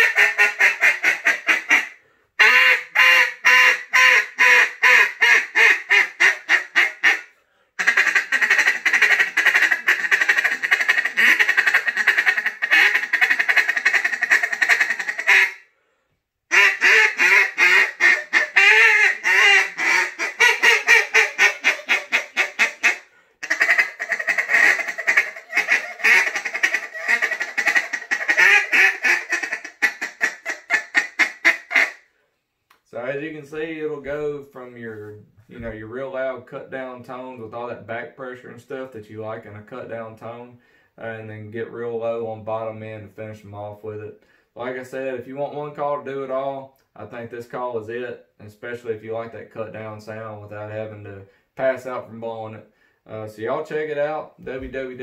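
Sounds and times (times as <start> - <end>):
duck call quacks: 0.0 - 15.7, 16.5 - 32.1.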